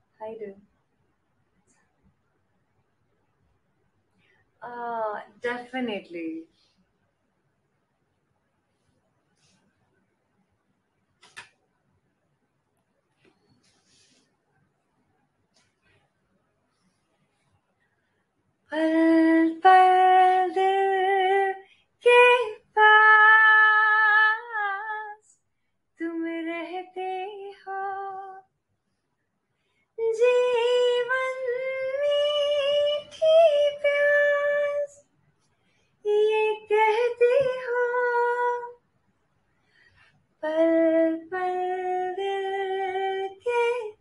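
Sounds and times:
woman singing unaccompanied: 18.7s - 25.3s, 26.0s - 28.5s, 30.0s - 35.0s, 36.1s - 38.8s, 40.4s - 44.0s.

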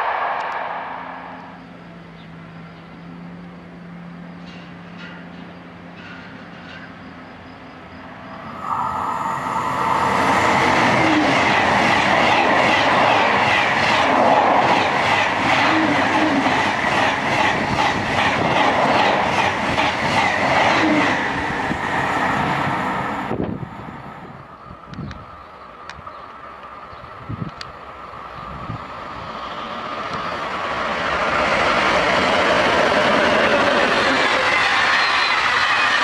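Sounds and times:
high-speed train passing: 0.0s - 36.0s
wheels clattering over rails: 4.4s - 7.3s.

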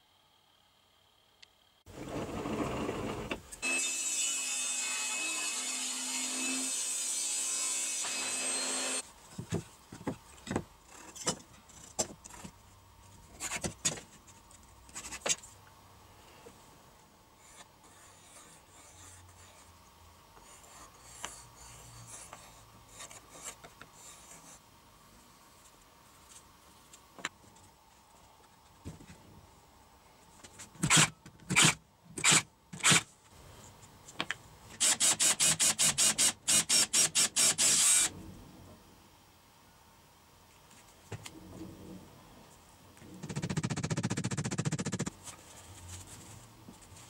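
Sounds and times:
compass and pencil scratching: 17.4s - 19.8s, 20.4s - 24.6s, 43.2s - 45.1s.

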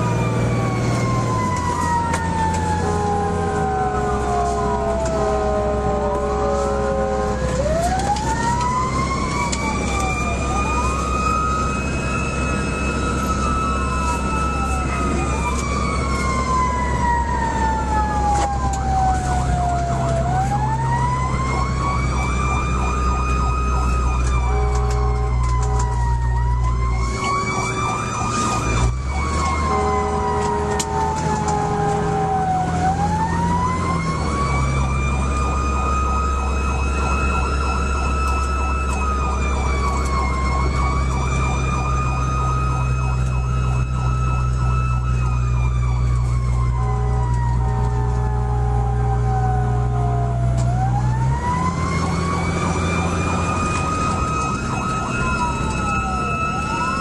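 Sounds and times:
fire engine siren wailing: 0.0s - 57.0s
truck engine drone: 0.0s - 57.0s
horn blasts: 29.6s - 31.0s.

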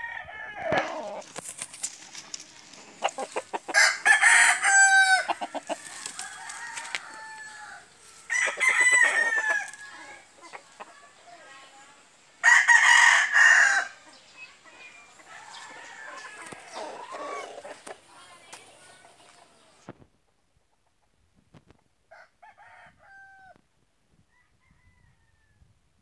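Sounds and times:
roosters crowing: 0.0s - 1.5s, 2.7s - 10.9s, 12.4s - 14.2s, 15.0s - 17.9s, 22.1s - 23.6s
chickens clucking: 0.6s - 12.4s, 14.0s - 21.9s.

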